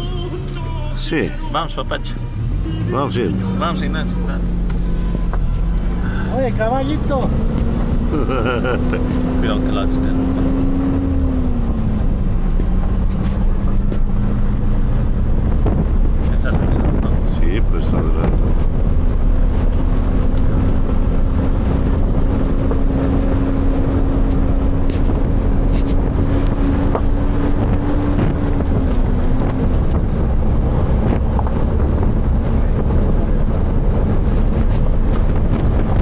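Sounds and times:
low rumble: 0.0 - 36.0
rising humming tone: 7.0 - 17.2, 18.2 - 36.0
wind buffeting microphone: 9.2 - 36.0.

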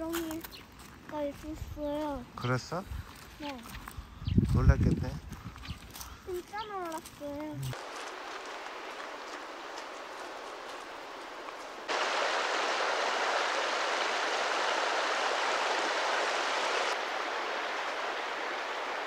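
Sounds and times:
stream flowing over stones: 7.7 - 19.0.

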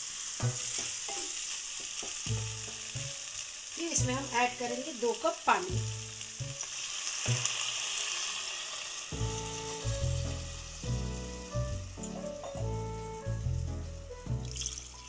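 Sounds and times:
food sizzling in a pan: 0.0 - 15.0
soft background music: 2.3 - 8.2, 9.0 - 15.0.

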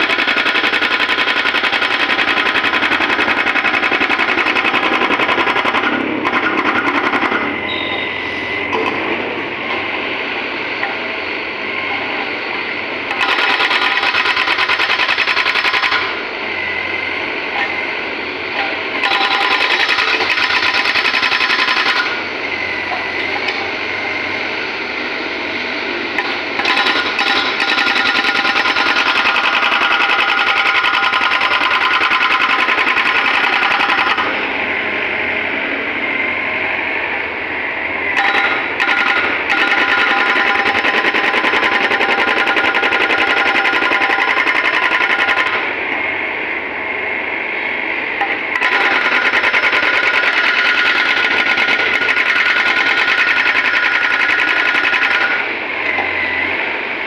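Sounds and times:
hydraulic breaker hammering asphalt: 0.0 - 8.1, 13.0 - 16.3, 18.5 - 22.3, 26.1 - 34.6, 38.1 - 45.8, 48.2 - 56.2
excavator engine running: 0.0 - 57.0.

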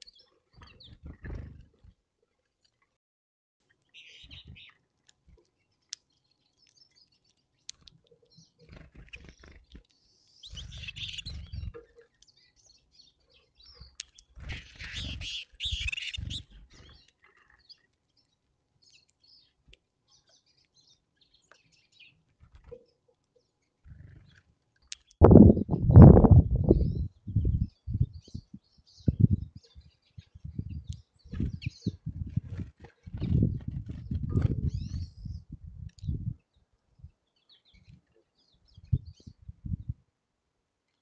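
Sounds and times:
finches chirping: 3.9 - 4.9, 5.6 - 25.2, 26.6 - 36.3.

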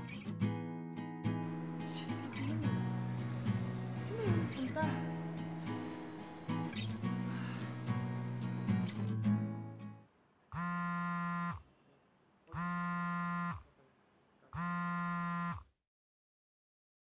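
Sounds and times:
guitar music: 0.0 - 10.0
smartphone buzzing: 10.5 - 11.7, 12.5 - 13.7, 14.6 - 15.8.

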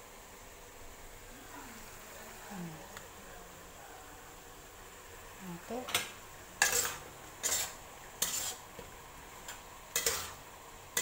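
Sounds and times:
utensil scraping in a wok: 5.0 - 11.0.

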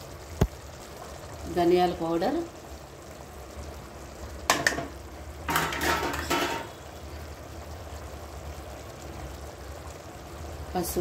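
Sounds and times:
kitchen utensils clattering: 5.5 - 6.8.

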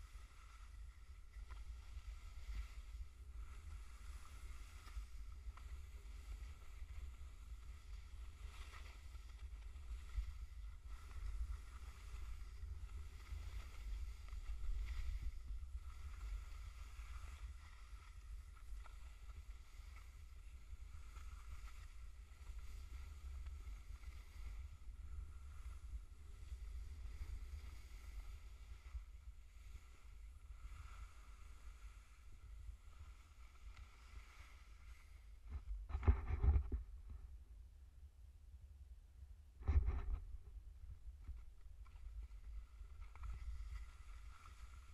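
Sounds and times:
skis swishing over snow: 0.0 - 36.6, 41.8 - 44.9.

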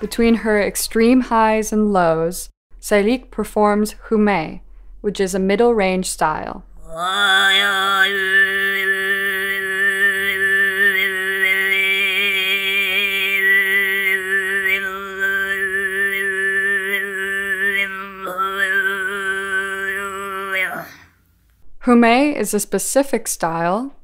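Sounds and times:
throat singing: 6.8 - 21.2.

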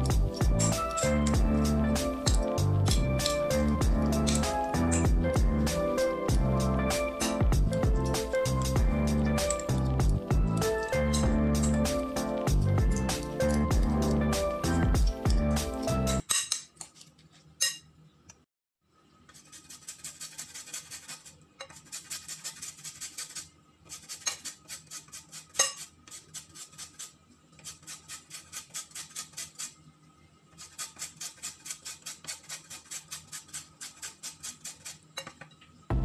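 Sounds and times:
hand grater scraping: 0.0 - 5.8, 19.3 - 29.8, 30.6 - 35.2.

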